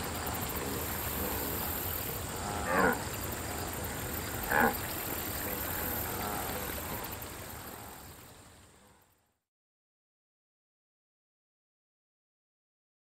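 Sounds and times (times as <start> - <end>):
steady background hiss: 0.0 - 9.3
low animal grunts: 2.4 - 4.8.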